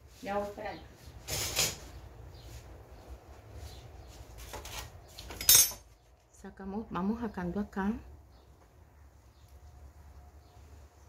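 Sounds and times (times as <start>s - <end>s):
tableware scraping: 1.2s - 1.9s, 4.6s - 5.9s
sharp clink: 5.4s - 5.9s.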